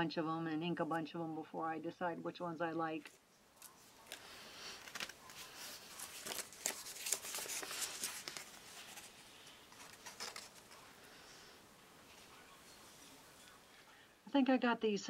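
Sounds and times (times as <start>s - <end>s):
packaging crinkling and clicking: 3.6s - 9.1s, 9.7s - 10.8s.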